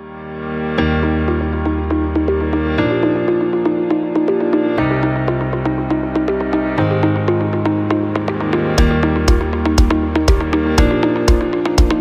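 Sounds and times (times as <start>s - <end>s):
synthesizer chords: 0.0s - 12.0s
ticking beat: 2.0s - 12.0s
heavy bass drum beat: 8.8s - 12.0s.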